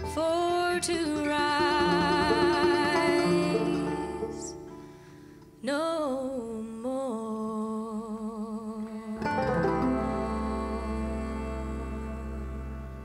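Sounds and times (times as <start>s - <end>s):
bowed double bass with vibrato: 0.0s - 5.2s, 7.4s - 13.0s
acoustic folk band playing: 0.0s - 5.6s, 9.2s - 13.0s.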